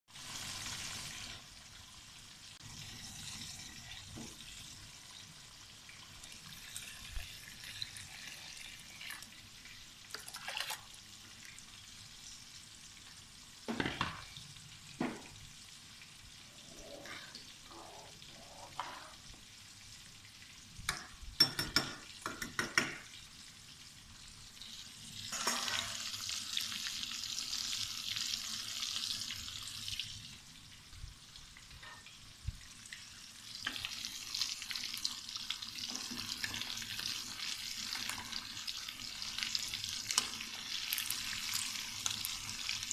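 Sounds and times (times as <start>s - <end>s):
rice pot bubbling: 13.4s - 25.0s.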